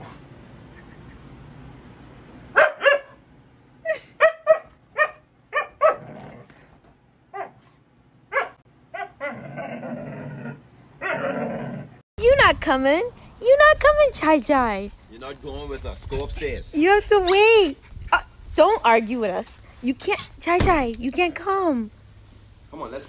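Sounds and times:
dog barking: 0:02.5 - 0:03.2, 0:04.2 - 0:06.0, 0:07.3 - 0:07.6, 0:08.3 - 0:09.7, 0:11.0 - 0:11.3.

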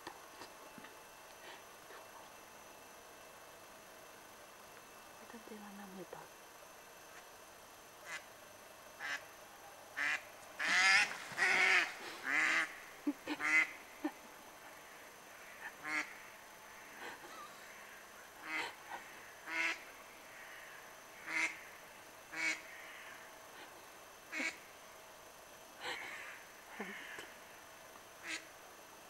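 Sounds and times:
ducks quacking: 0:10.0 - 0:13.8.

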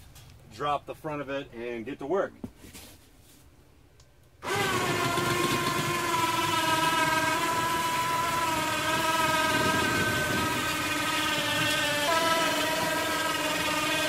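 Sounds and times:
electric hoist motor whine: 0:04.4 - 0:14.0.

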